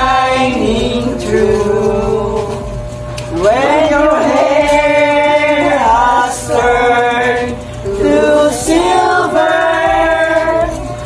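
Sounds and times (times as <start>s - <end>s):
group singing in unison: 0.0s - 11.0s.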